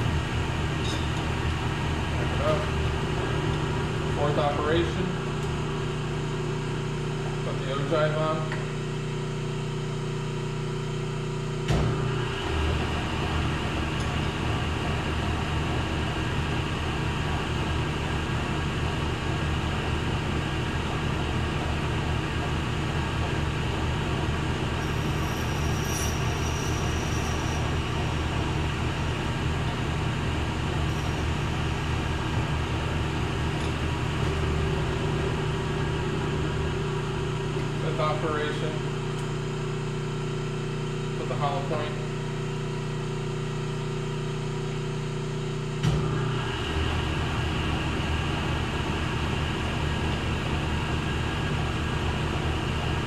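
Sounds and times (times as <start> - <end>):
thin high-pitched whine: 24.8 - 28.3
lathe cutting brass: 24.8 - 29.4.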